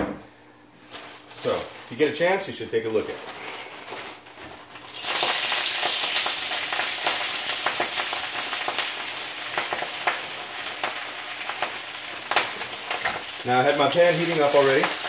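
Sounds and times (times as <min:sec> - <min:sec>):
frying with crackles: 0:00.8 - 0:15.0
vegetables sizzling in hot oil: 0:03.3 - 0:15.0.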